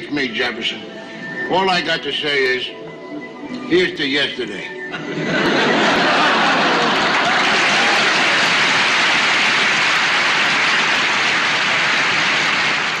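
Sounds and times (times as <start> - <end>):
audience applauding: 5.2 - 13.0.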